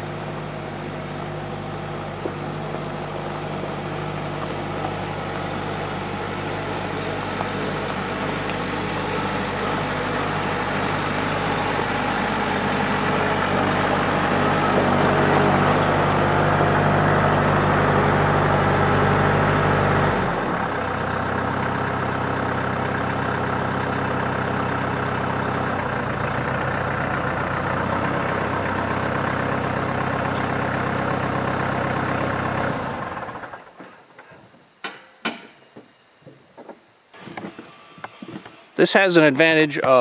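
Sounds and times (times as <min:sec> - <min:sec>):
tractor engine idling: 0:00.0 - 0:34.4
sharp knocks: 0:34.8 - 0:35.6.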